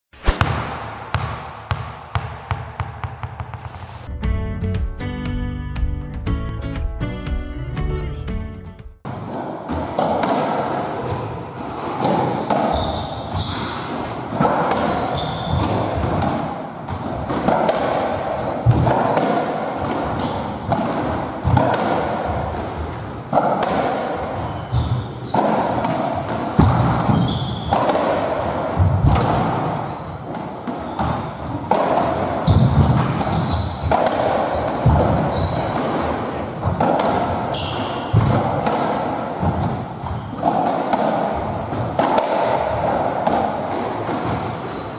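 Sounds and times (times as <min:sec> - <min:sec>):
ball knocking off walls: 0:00.2 - 0:04.0
ball hit by rackets: 0:00.2 - 0:04.1, 0:09.1 - 0:10.8, 0:14.3 - 0:44.5
shoe squeaks on wooden floor: 0:11.7 - 0:14.3, 0:15.0 - 0:15.8, 0:18.3 - 0:18.7, 0:22.8 - 0:23.5, 0:24.2 - 0:25.4, 0:26.4 - 0:27.8, 0:29.8 - 0:33.9, 0:34.5 - 0:35.9, 0:37.5 - 0:38.9, 0:40.0 - 0:40.6.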